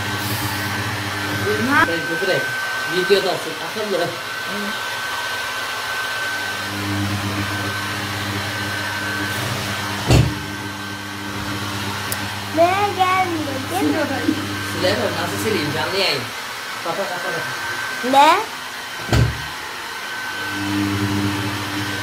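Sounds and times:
hair dryer running: 0:00.0 - 0:22.0.

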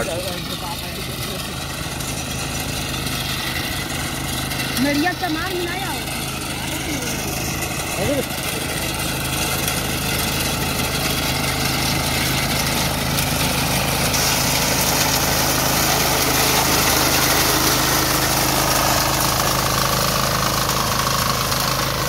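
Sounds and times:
small engine running under load: 0:00.0 - 0:22.0.

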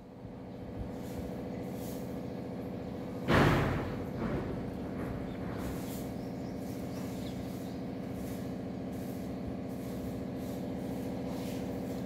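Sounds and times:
engine idling hum: 0:00.0 - 0:12.0.

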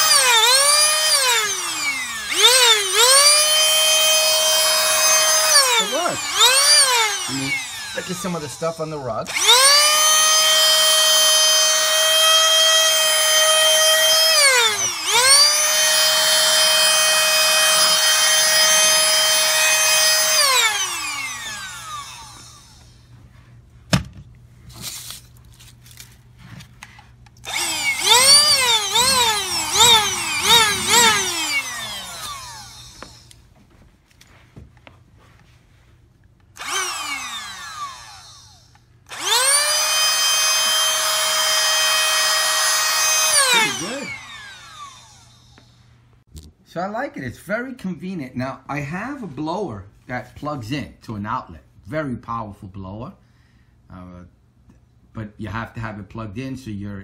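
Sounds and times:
electric air duster whining: 0:00.0 - 0:23.4, 0:26.5 - 0:33.5, 0:36.5 - 0:45.9.

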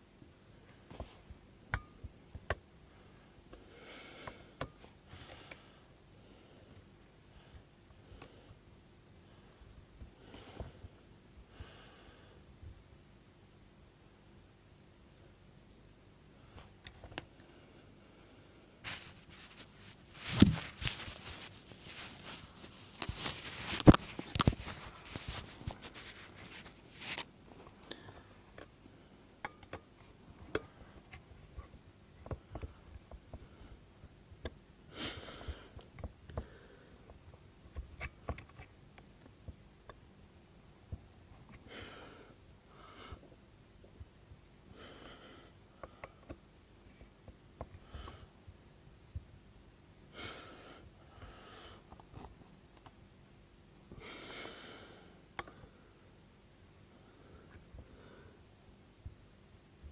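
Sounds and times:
person breathing and sniffing: 0:03.0 - 0:08.6, 0:10.2 - 0:12.4, 0:17.6 - 0:28.4, 0:34.9 - 0:37.1.

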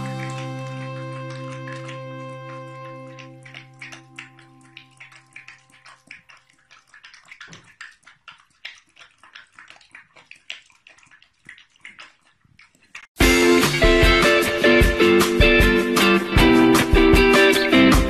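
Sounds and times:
dog lapping and chewing wet food: 0:00.0 - 0:13.3.

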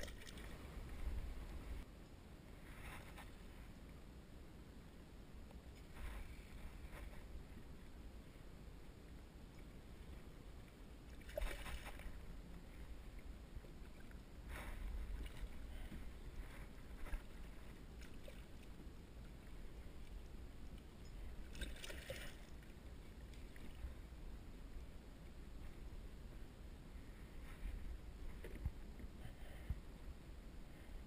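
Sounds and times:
steady low rumble: 0:00.0 - 0:31.0
net going into water: 0:11.2 - 0:12.2, 0:21.5 - 0:22.5.

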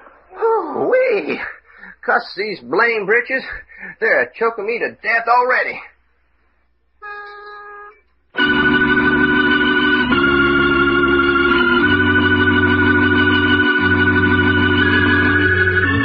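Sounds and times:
organ chords: 0:07.0 - 0:16.0.

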